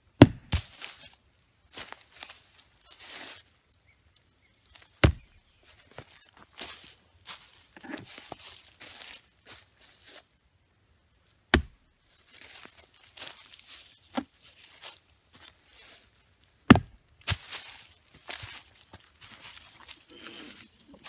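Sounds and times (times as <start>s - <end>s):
footsteps in dry leaves: 0.5s - 10.5s, 11.2s - 21.0s
knife thunking into log: 5.0s - 5.3s, 11.5s - 11.8s, 16.7s - 16.9s.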